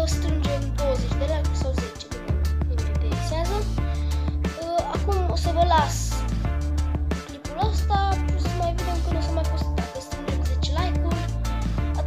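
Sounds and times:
person singing or rapping: 0:00.0 - 0:02.2, 0:04.5 - 0:06.3, 0:07.3 - 0:12.0
music with heavy bass beat: 0:02.0 - 0:12.0.

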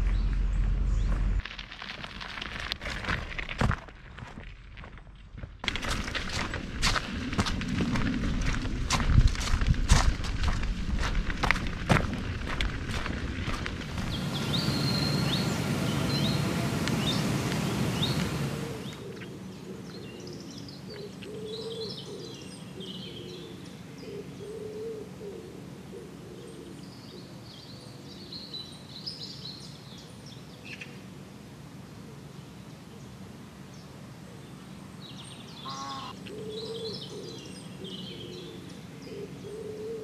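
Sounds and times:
small birds chirping: 0:14.0 - 0:24.6, 0:34.5 - 0:40.0
pigeon cooing: 0:21.2 - 0:26.8, 0:35.7 - 0:40.0
harsh bird call: 0:35.5 - 0:36.8.

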